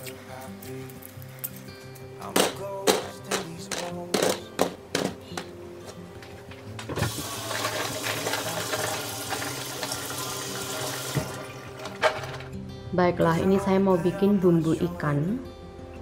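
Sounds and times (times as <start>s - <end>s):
tap water running into colander: 6.9s - 12.4s.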